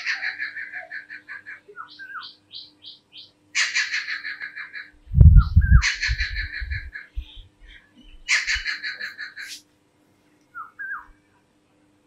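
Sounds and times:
low thumping rumble: 0:05.0 - 0:07.5
kingfisher calling: 0:05.6 - 0:07.5, 0:08.2 - 0:09.6.

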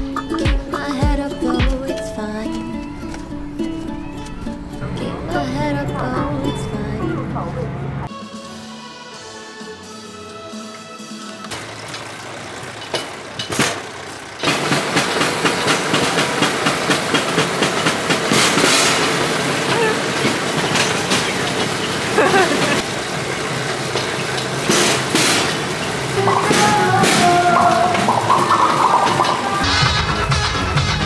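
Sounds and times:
rail bike rattling rumble: 0:00.0 - 0:08.1, 0:11.5 - 0:31.0
wheels clacking on rail joints: 0:11.4 - 0:30.2
sharp jolts: 0:11.6 - 0:29.8.

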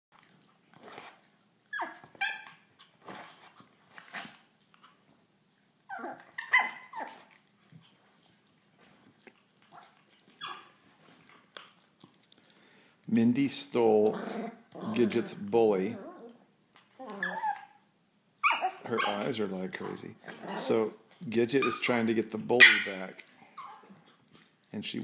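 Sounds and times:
small dogs yapping and whining: 0:00.2 - 0:05.1, 0:05.8 - 0:11.4, 0:14.2 - 0:19.4, 0:20.2 - 0:21.0, 0:21.6 - 0:22.0, 0:22.6 - 0:24.2.

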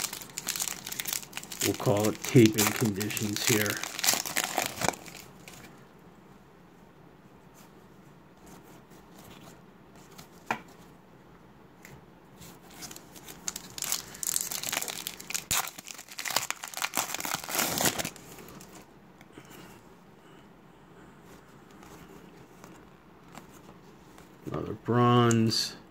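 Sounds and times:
wrapper tearing and crinkling: 0:00.0 - 0:05.7, 0:12.7 - 0:18.8.

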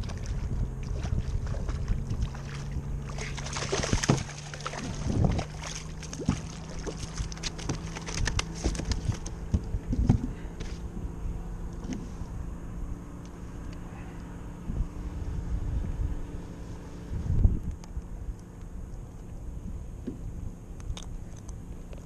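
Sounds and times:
fish splashing at surface: 0:00.0 - 0:09.3
fish flopping against hull: 0:00.0 - 0:10.9.

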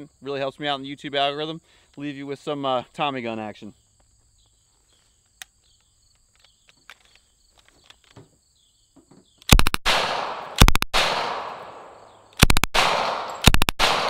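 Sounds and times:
submachine gun bursts with echo: 0:09.5 - 0:11.8, 0:12.4 - 0:14.0.

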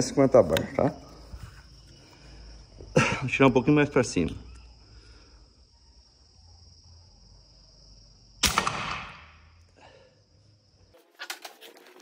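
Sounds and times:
air rifle shot: 0:08.4 - 0:09.4.

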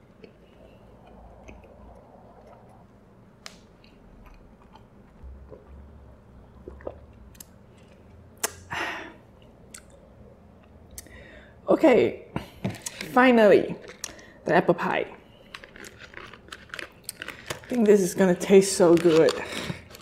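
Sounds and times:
chewing with wet mouth clicks: 0:00.1 - 0:05.7, 0:06.6 - 0:08.6, 0:09.4 - 0:10.0.

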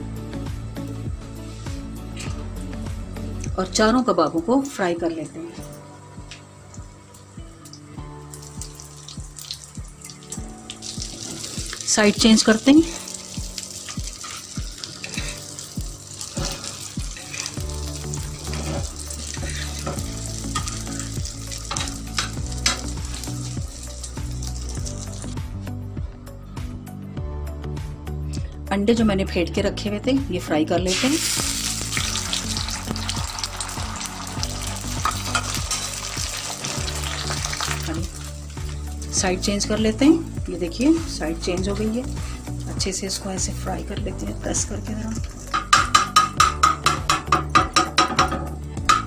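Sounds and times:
kebabs sizzling in hot oil: 0:00.2 - 0:25.7, 0:30.8 - 0:49.0
metal utensils scraping a pan: 0:13.9 - 0:15.5, 0:16.3 - 0:17.6, 0:18.4 - 0:21.0, 0:35.0 - 0:35.9.

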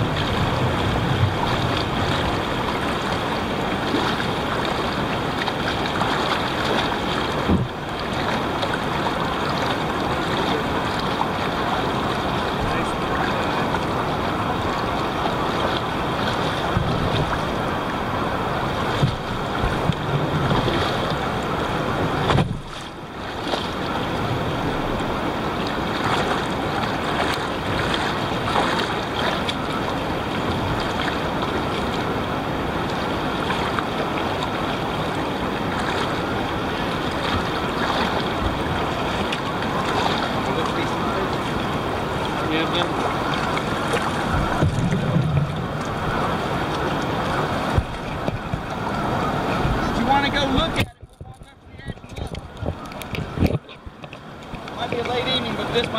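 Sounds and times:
river water rushing: 0:00.0 - 0:55.9
splashing wading footsteps: 0:01.3 - 0:55.9
sharp splashes or knocks: 0:42.9 - 0:46.1.

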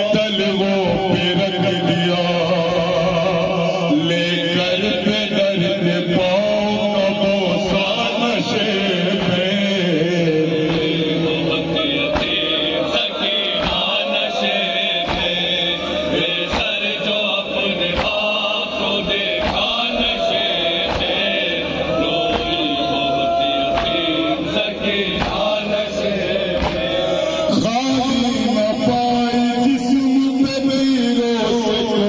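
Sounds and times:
person chanting a lament: 0:00.0 - 0:32.0
sharp chest-beating strikes: 0:17.9 - 0:18.4, 0:19.0 - 0:19.9, 0:20.8 - 0:21.3, 0:25.1 - 0:25.6, 0:26.5 - 0:27.0.

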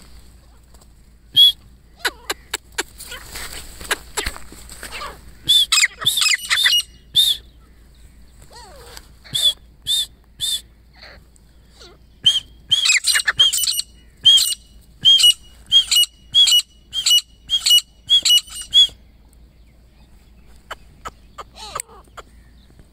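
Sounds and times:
bird calling sharp high notes: 0:05.4 - 0:07.5, 0:12.2 - 0:19.0.

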